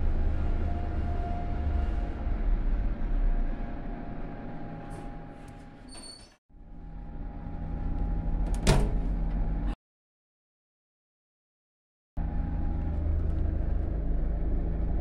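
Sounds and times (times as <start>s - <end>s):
elevator hum and rumble: 0.0s - 9.8s, 12.2s - 15.0s.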